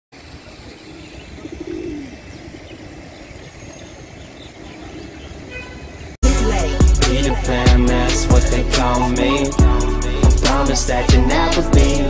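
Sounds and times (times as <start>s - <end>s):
pigeons cooing: 0.5s - 6.1s.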